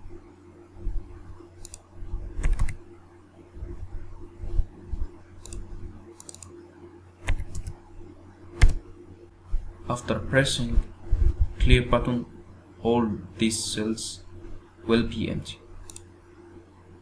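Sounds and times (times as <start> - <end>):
steady low hum: 0.0 - 17.0
mouse clicks: 1.6 - 1.8, 5.4 - 6.6, 7.2 - 7.8, 15.8 - 16.1
computer keyboard keys: 2.4 - 2.8, 7.3 - 7.8.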